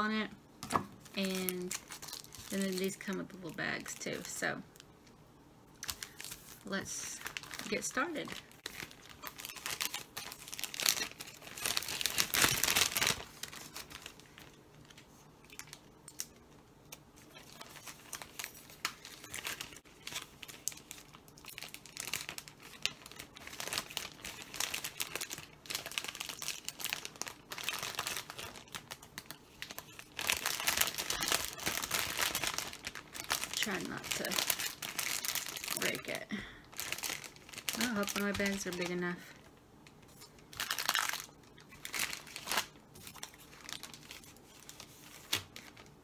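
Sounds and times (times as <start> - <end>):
plastic bag crinkling: 1.0 - 4.6, 5.8 - 16.4, 17.2 - 46.0.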